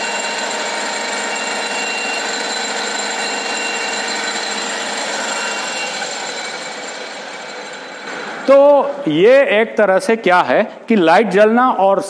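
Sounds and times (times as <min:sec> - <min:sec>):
lathe whirring and whining: 0:00.0 - 0:09.2.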